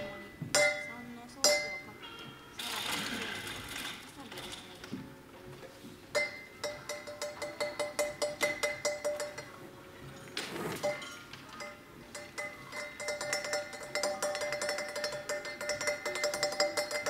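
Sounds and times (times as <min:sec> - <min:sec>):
fast metallic percussion: 0:10.8 - 0:17.0.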